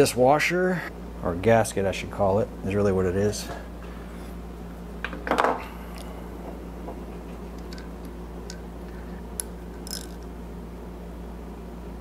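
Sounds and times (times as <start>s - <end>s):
low steady hum: 0.0s - 12.0s
small metal parts rattling: 9.8s - 10.3s.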